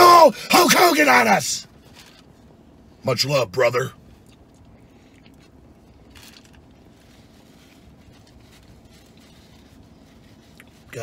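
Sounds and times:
low steady hum: 0.0s - 11.0s
faint chewing: 4.1s - 10.9s.

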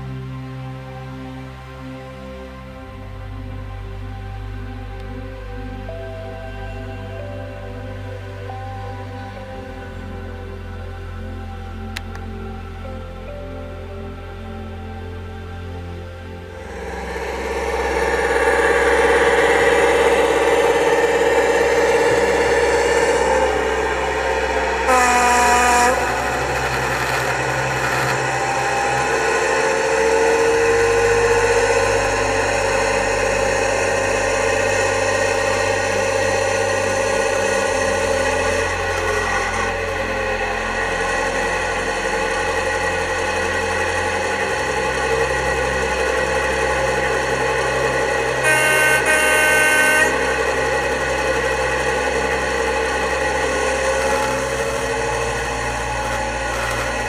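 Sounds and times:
model locomotive engine drone: 0.0s - 57.0s
model locomotive horn: 16.5s - 57.0s.

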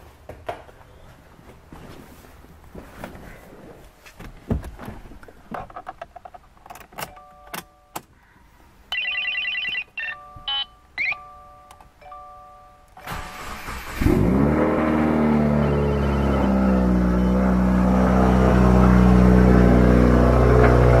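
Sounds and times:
dashboard warning chime: 7.1s - 8.0s, 9.0s - 13.0s
short beeps: 10.0s - 12.8s.

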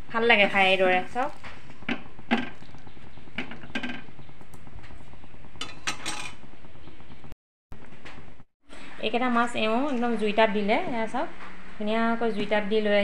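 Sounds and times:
metal spoon clinking and scraping: 5.6s - 6.4s.

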